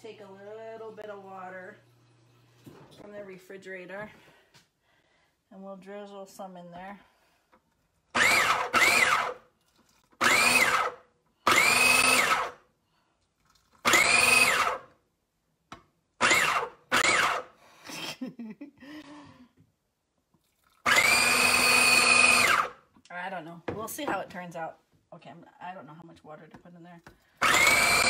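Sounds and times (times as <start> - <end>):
food processor motor whine: 8.1 - 9.5, 10.2 - 12.6, 13.8 - 15.0, 16.2 - 17.6, 20.8 - 22.8, 27.4 - 28.0.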